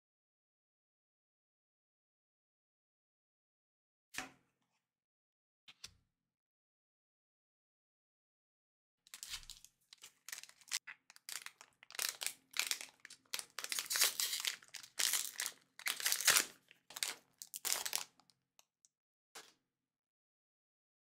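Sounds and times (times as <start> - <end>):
foil wrapper crinkling and tearing: 9.1 - 18.3.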